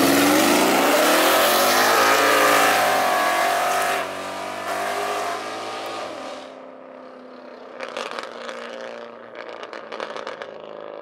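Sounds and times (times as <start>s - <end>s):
car engines revving hard: 0.0s - 6.6s.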